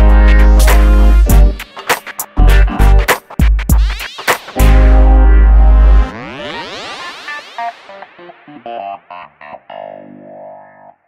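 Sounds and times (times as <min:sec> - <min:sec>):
deep bass note: 0:04.6 - 0:06.1
falling synth sweep: 0:04.6 - 0:08.6.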